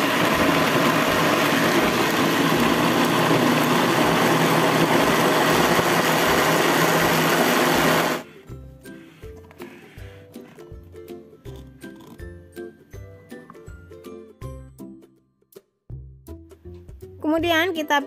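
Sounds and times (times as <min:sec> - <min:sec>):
blender running: 0:00.0 - 0:08.4
background music: 0:02.6 - 0:18.0.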